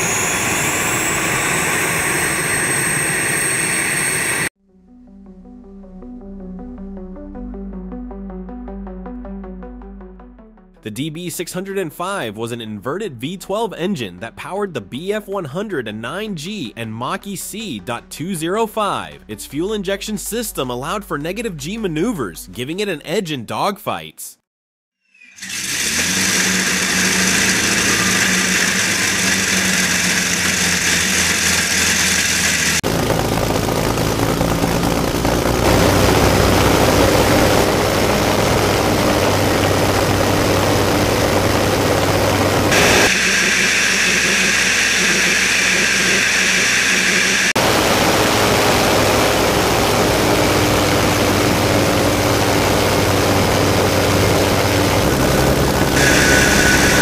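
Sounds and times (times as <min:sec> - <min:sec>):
aero engine running: 0:00.0 - 0:04.6, 0:25.4 - 0:57.0.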